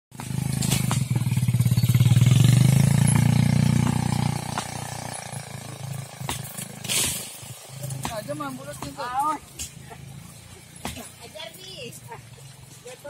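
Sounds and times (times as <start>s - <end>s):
small engine running: 0.2s - 8.0s.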